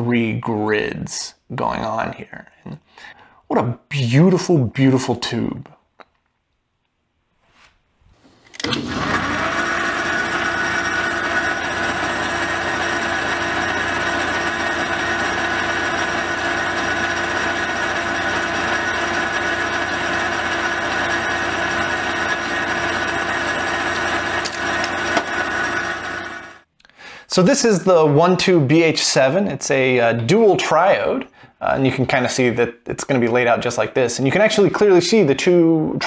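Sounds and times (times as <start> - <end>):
small electric motor running: 8.6 - 26.6.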